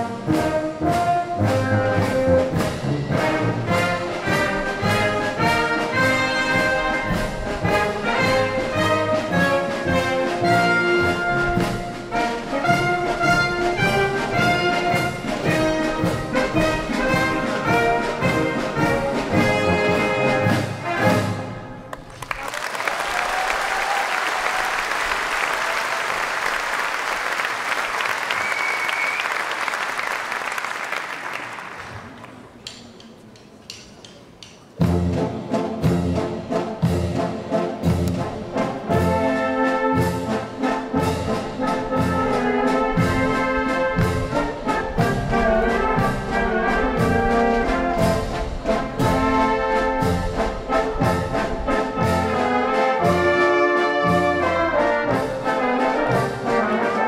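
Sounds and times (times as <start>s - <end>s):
brass band playing: 0.0s - 22.7s, 34.8s - 57.0s
audience applause: 21.9s - 32.6s.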